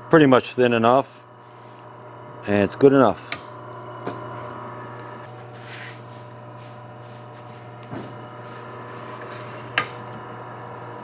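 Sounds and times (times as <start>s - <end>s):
meat slicer motor humming: 0.1s - 11.0s.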